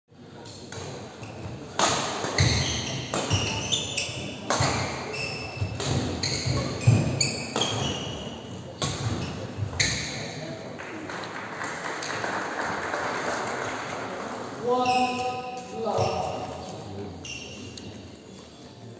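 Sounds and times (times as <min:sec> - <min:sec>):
shoes squeaking on court floor: 0:00.7 - 0:10.4, 0:14.7 - 0:18.1
racket hitting shuttlecock: 0:01.7 - 0:10.1.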